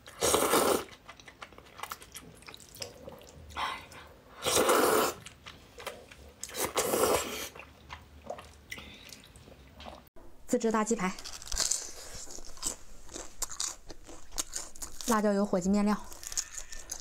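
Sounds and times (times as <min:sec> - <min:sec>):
person slurping noodles: 0:00.1 - 0:01.0, 0:04.4 - 0:05.3, 0:06.5 - 0:07.6.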